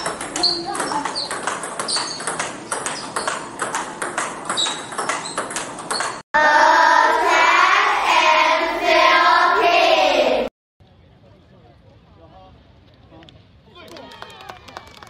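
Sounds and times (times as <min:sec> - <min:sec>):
short high squeaks: 0:00.0 - 0:03.5, 0:04.5 - 0:06.2
table tennis balls ticking: 0:00.0 - 0:06.2
children singing in unison: 0:06.4 - 0:10.5.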